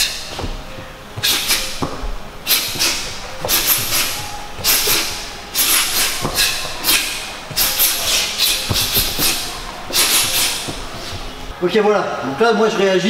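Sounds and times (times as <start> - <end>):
dull low thuds of feet on mat: 0.0 - 11.6
sharp hissing exhales: 1.2 - 1.8, 2.4 - 11.2.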